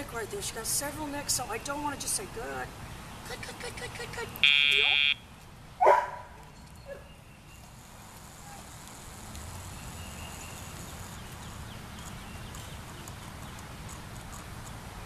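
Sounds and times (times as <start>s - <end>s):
short sharp call: 4.4s - 5.2s.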